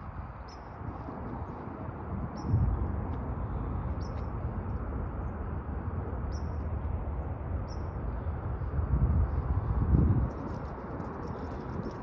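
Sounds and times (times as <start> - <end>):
wind on microphone: 0.0 - 4.9, 8.0 - 12.0.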